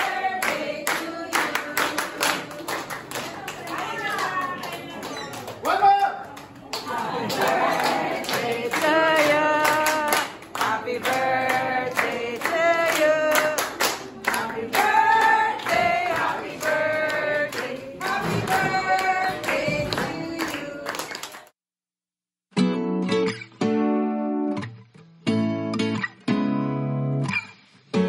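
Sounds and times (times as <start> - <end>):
group singing: 0.0 - 2.9, 6.8 - 21.3
hands clapping in time: 0.4 - 21.5.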